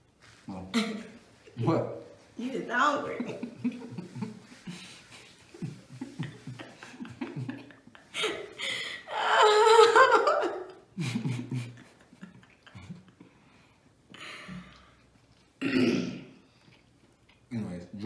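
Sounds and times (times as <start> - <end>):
woman laughing: 2.9 - 4.9, 5.6 - 13.1.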